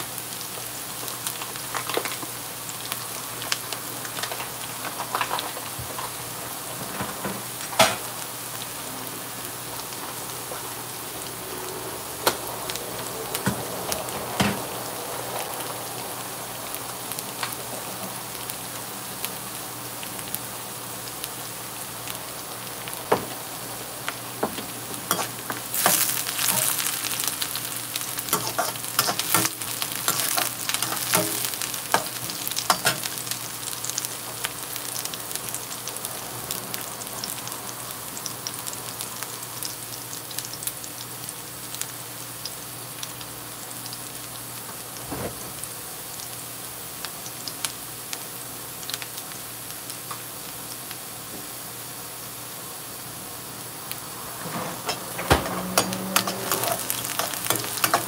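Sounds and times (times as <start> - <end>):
onions sizzling in hot oil: 0.0 - 58.0
metal spoon scraping a pan: 25.1 - 26.9, 28.3 - 33.1, 54.5 - 58.0.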